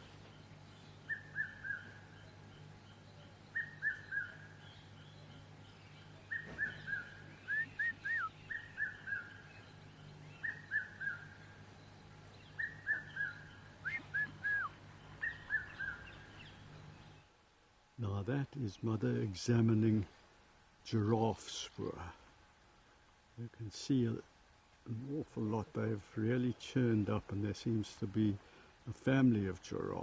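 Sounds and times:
bird calling falling notes: 0:06.2 - 0:09.5, 0:12.4 - 0:16.7.

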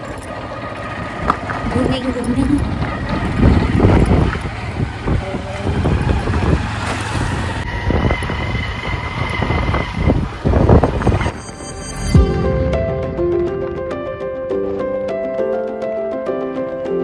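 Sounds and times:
road noise: 0:00.0 - 0:17.0
wind buffeting microphone: 0:00.8 - 0:11.3.

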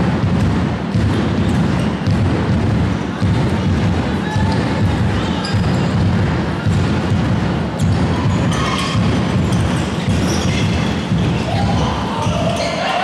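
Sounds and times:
ball bouncing thuds: 0:00.0 - 0:12.6
echoing sports hall din: 0:00.0 - 0:13.0.

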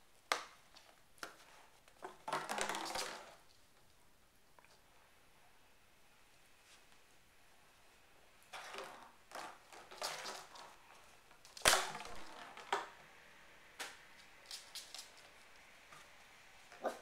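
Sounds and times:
plastic bottle crinkling and clattering: 0:02.0 - 0:03.4, 0:08.5 - 0:10.8.

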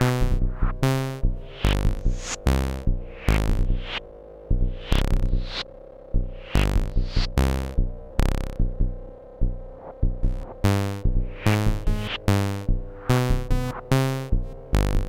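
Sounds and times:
steady held synth tone: 0:00.0 - 0:14.6
drum machine hits: 0:10.0 - 0:13.7.

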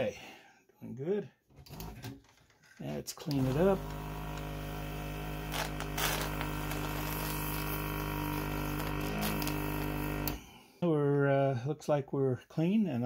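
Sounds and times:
vacuum pump humming: 0:03.2 - 0:10.6.

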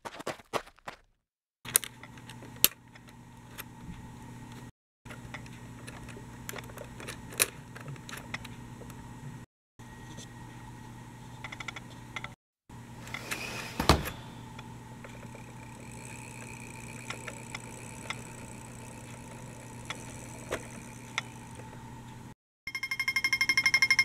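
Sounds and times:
small electric motor whining: 0:15.0 - 0:22.3.

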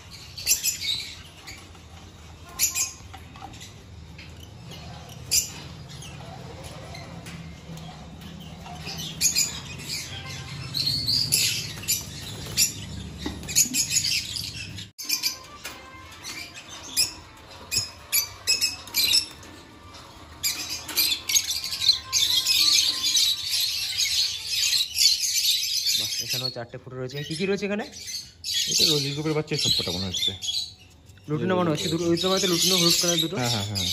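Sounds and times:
lovebirds chirping and squawking: 0:00.0 - 0:33.9.

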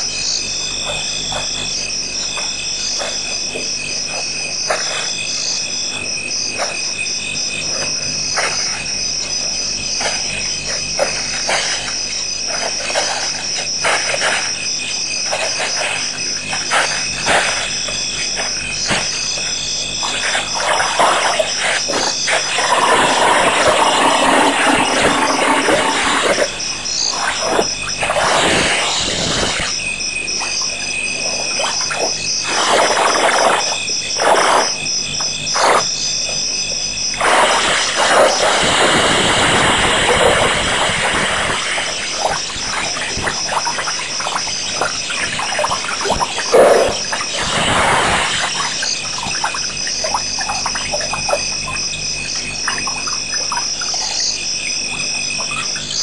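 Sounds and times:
frogs calling: 0:00.0 - 0:56.0
insects trilling: 0:00.0 - 0:56.0
rushing noise bursts: 0:20.1 - 0:29.8.

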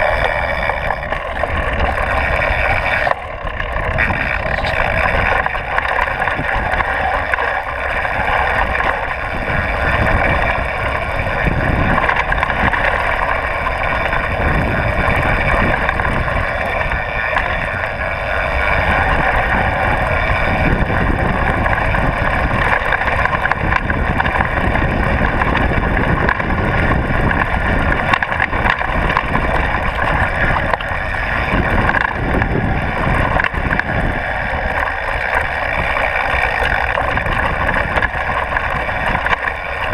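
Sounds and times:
bike frame rattling and knocking: 0:00.0 - 0:39.9
wind rushing on microphone: 0:00.0 - 0:39.9.

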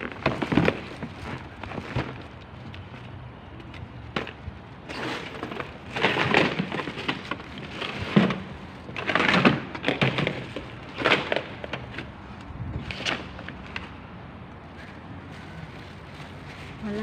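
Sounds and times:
plastic bags rustling: 0:00.0 - 0:03.2, 0:14.8 - 0:17.0.

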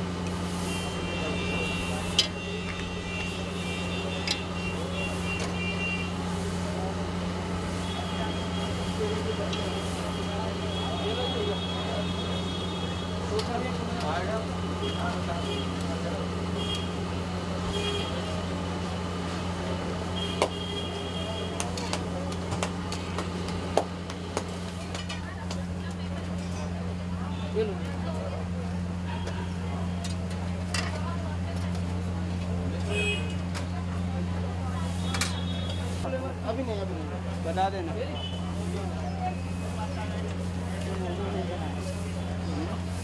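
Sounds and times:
hot oil sizzling: 0:00.0 - 0:10.9.

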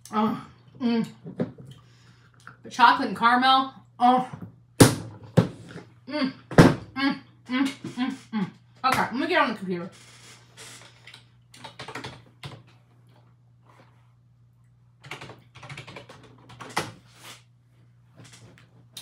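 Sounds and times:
computer keyboard typing: 0:11.6 - 0:12.6, 0:15.0 - 0:17.0.

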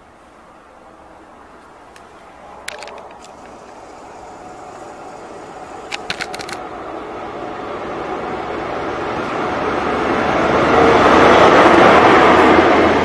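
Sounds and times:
diesel train approaching: 0:00.0 - 0:13.0
sharp clicks: 0:05.8 - 0:06.6.

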